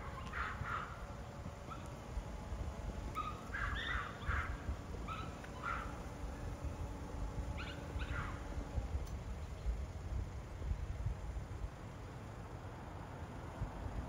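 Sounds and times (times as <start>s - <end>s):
crow cawing: 3.5s - 4.6s.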